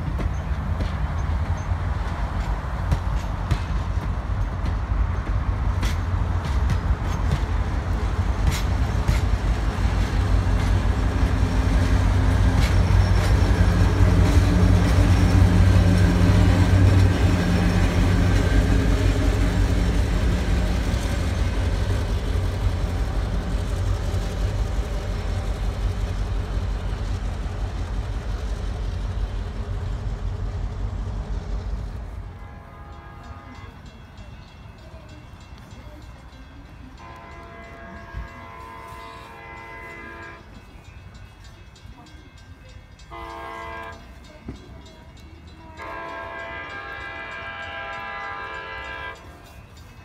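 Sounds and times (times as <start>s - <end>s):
train wheels clicking over rail joints: 0.0s - 32.3s
diesel locomotive engine drone: 0.0s - 50.0s.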